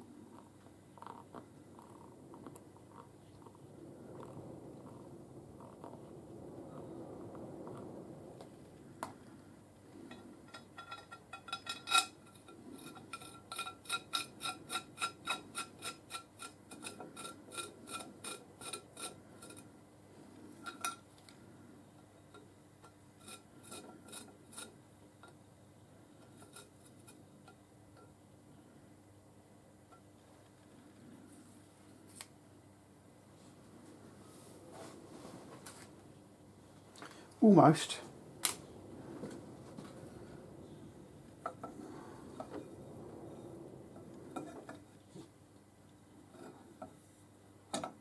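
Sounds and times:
metal rubbing on metal: 10.0 - 19.7, 23.1 - 24.8.

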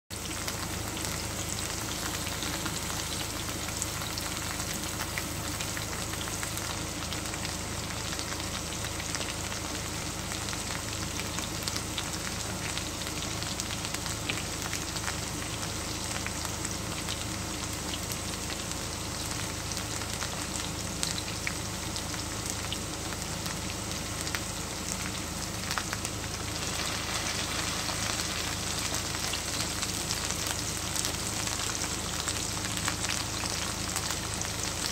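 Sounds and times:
fries sizzling in oil: 0.1 - 34.9.

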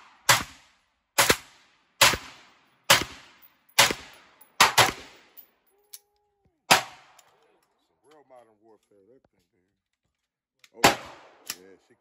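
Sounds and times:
rifle shots with echo: 0.0 - 5.4, 6.7 - 7.2, 10.8 - 11.8.

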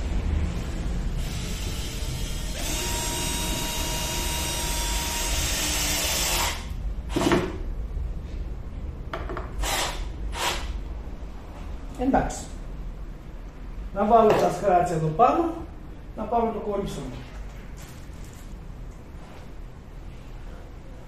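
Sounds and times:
cordless drill driving a screw: 1.2 - 6.7, 9.6 - 10.8.

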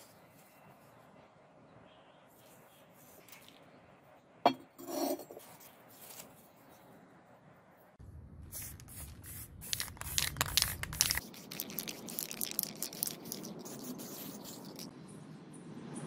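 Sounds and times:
aerosol spray can hissing: 8.6 - 14.9.

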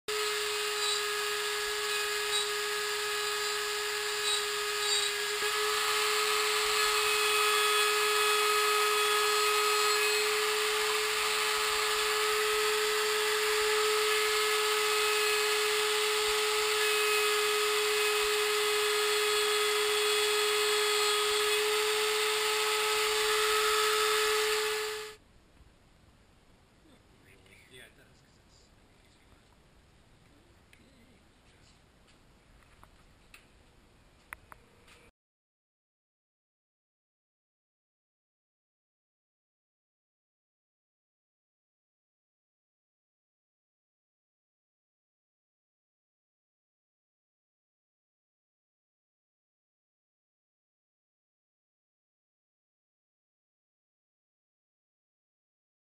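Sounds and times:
router cutting wood with high whine: 0.1 - 25.2.

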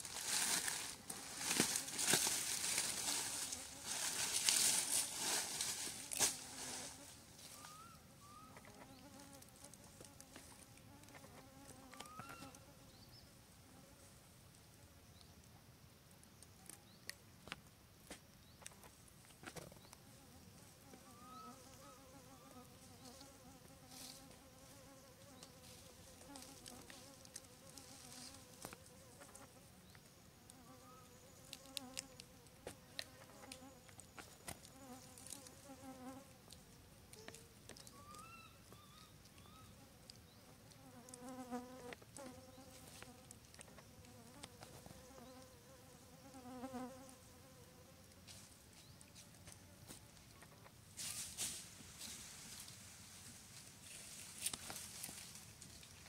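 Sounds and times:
flying insect buzzing: 0.0 - 13.0, 20.0 - 36.4, 39.5 - 50.2.

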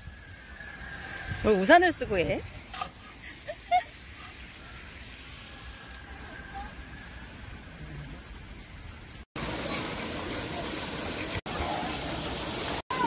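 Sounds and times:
fountain water splashing: 9.0 - 13.0.

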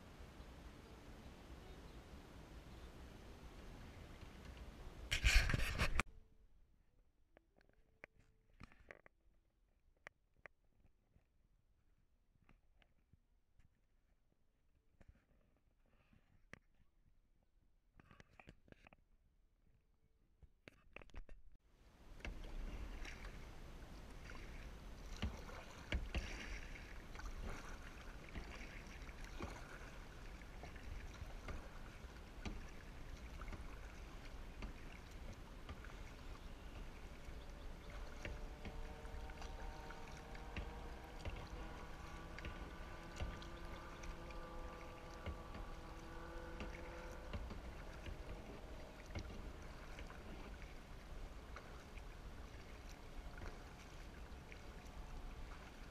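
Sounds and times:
water lapping along hull: 0.0 - 6.2, 14.9 - 16.9, 20.7 - 55.9
paddle dipping into water: 0.5 - 6.0, 21.9 - 55.9
small knocks: 40.4 - 44.5.

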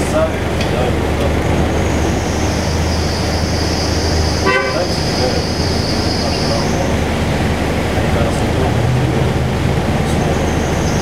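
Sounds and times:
high-pitched whine: 0.0 - 11.0
traffic engine rumble: 0.0 - 11.0
vehicle horn toot: 4.4 - 5.5.

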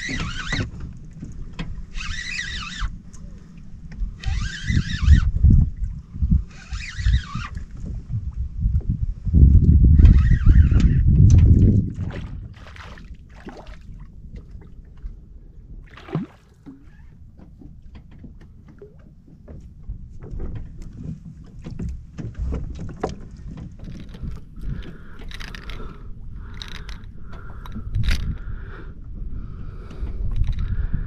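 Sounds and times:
water lapping against hull: 0.0 - 31.0
wind rumble on microphone: 0.0 - 31.0
fishing gear clicks and knocks: 16.6 - 28.4, 30.0 - 30.8.

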